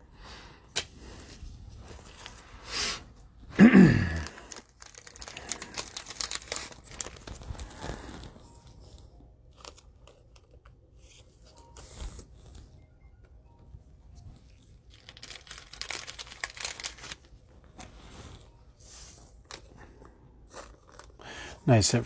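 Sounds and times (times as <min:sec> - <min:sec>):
plastic wrapper crinkling and tearing: 0:03.8 - 0:08.9, 0:09.5 - 0:12.2, 0:14.5 - 0:17.3, 0:20.4 - 0:21.3.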